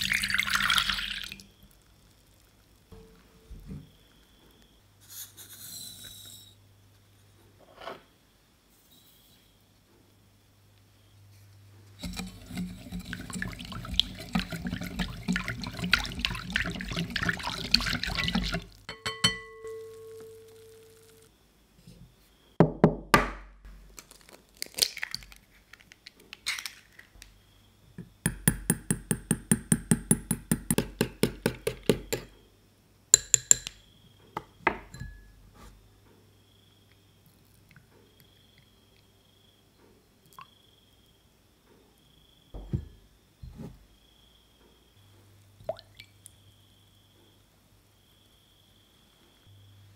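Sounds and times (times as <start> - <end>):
eggs beaten in ceramic bowl: 12.0 - 20.2, 28.3 - 32.3
stirring in a bowl: 12.0 - 20.2
short ringing tone: 19.1 - 21.3
knocks: 42.6 - 43.0.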